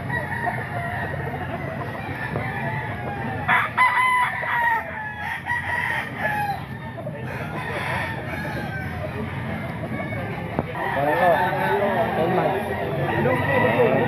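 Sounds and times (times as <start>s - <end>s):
distant roosters crowing: 0.0s - 14.0s
rooster crowing loudly: 3.5s - 6.7s.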